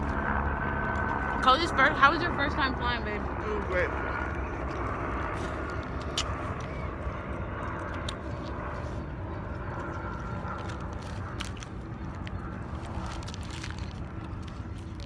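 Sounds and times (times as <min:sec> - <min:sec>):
low outdoor rumble: 0:00.0 - 0:15.0
small clicks and crackles: 0:04.1 - 0:15.0.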